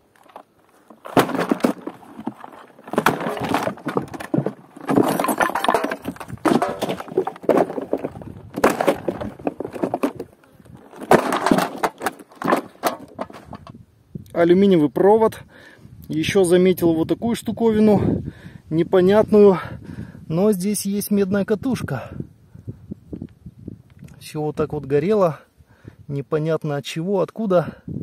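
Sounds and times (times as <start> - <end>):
accordions crashing onto debris: 0.9 - 13.7.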